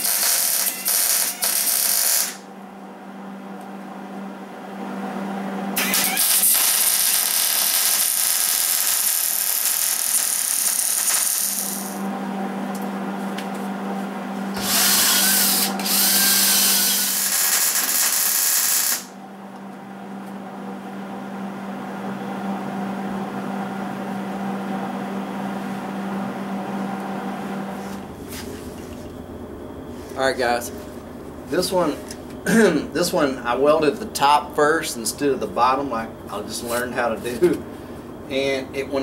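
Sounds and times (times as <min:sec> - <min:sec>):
welding arc hissing: 0:00.0 - 0:02.4, 0:05.8 - 0:12.0, 0:14.6 - 0:19.2
steady low hum: 0:00.0 - 0:39.0.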